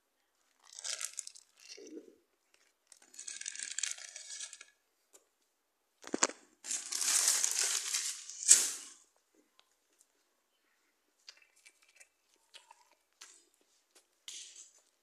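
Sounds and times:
wrapper crinkling: 0.6 - 1.8, 2.5 - 4.8, 6.0 - 9.1.

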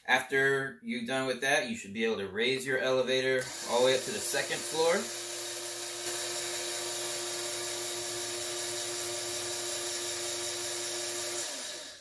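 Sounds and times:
small electric motor whining: 3.4 - 12.0.

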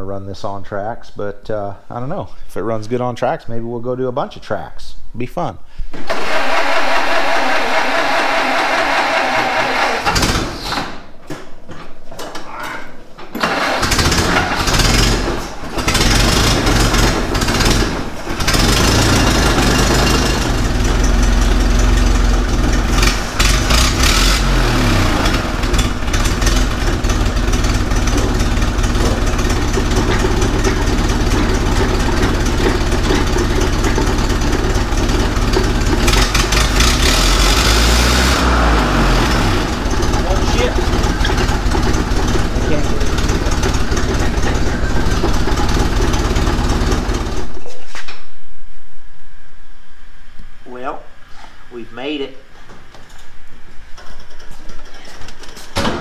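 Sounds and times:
car engine starting and running: 6.0 - 11.0, 13.4 - 47.7.

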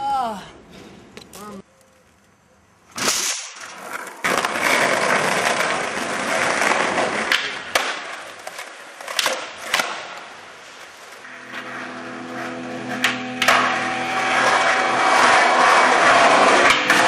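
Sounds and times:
skateboard wheels rolling on pavement: 1.0 - 17.0
skateboard clacks: 3.6 - 11.2.

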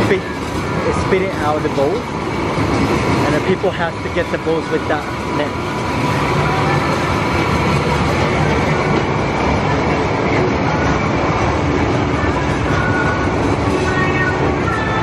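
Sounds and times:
loud steady rumbling: 0.0 - 15.0.

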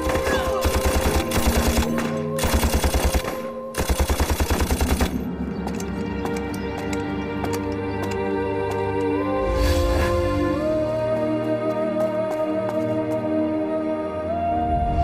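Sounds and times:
rapid rifle gunfire: 0.0 - 5.2
dramatic film score music: 0.0 - 15.0.

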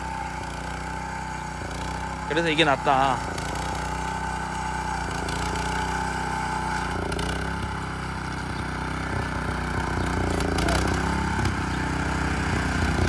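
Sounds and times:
cultivator engine running: 0.0 - 13.0.

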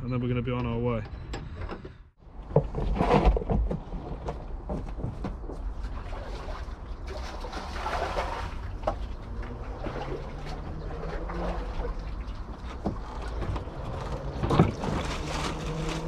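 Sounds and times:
liquid sloshing and hissing: 6.0 - 13.4.

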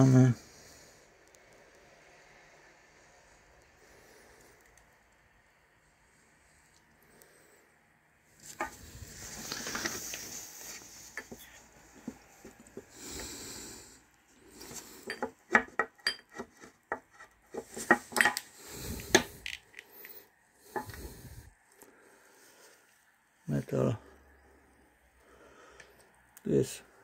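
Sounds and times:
perfume caps rubbing and scraping: 8.4 - 21.5
glass bottles clicking and tapping: 14.7 - 18.4.

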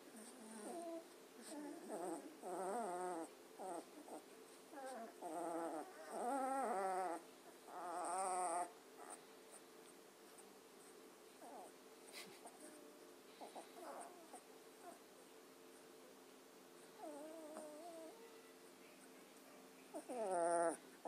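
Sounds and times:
puppies whining: 0.2 - 9.2, 12.4 - 15.0, 17.0 - 18.2, 20.0 - 20.9.

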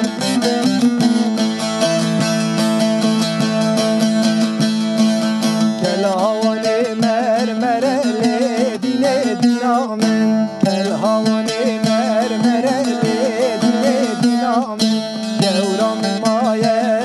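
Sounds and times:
plucked string instrument: 0.0 - 17.0
person singing wavering melody: 5.8 - 17.0.

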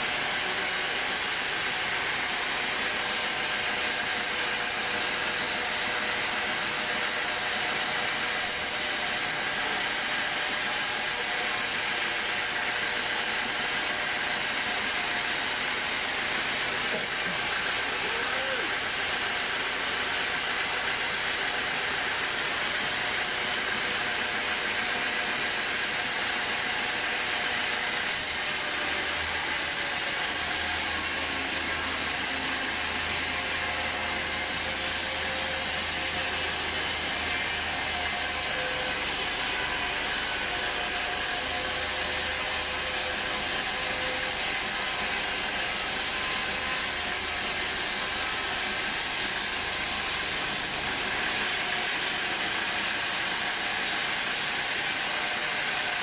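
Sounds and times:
band saw cutting log: 0.0 - 13.5, 26.4 - 51.9.

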